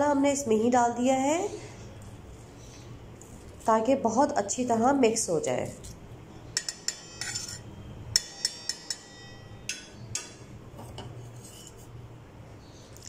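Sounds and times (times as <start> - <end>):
fork clinking against metal bowl: 6.6 - 11.8.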